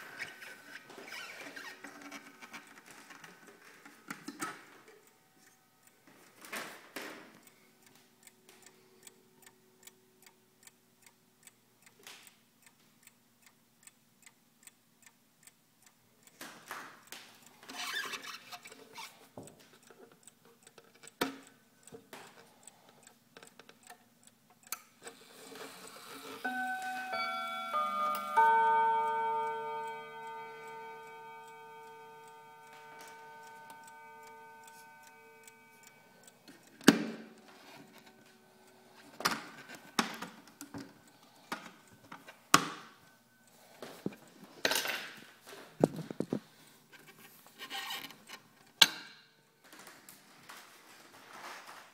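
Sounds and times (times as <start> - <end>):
mantel clock chime: 26.4 - 36.5.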